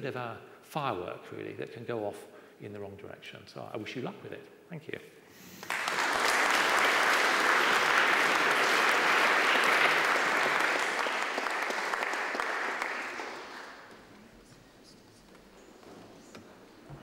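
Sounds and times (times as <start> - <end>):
audience applauding: 5.6 - 14.0.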